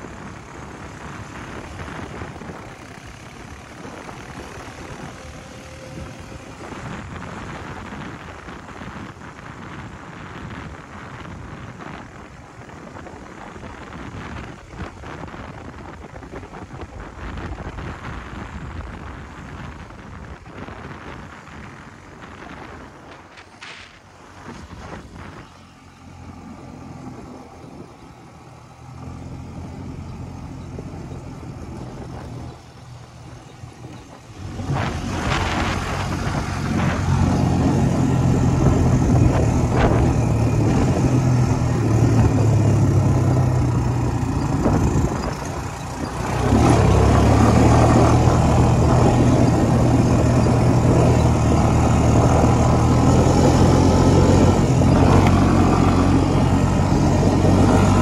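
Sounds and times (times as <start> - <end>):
quad bike engine revving: 0.0 - 8.2, 29.0 - 58.0.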